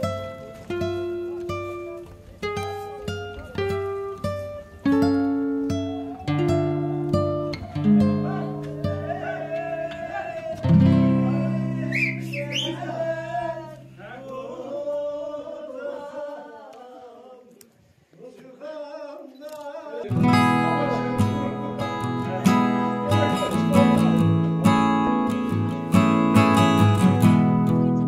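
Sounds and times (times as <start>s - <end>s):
acoustic guitar strumming: 0.0s - 14.1s, 20.1s - 28.0s
person singing: 6.0s - 17.6s, 18.6s - 28.0s.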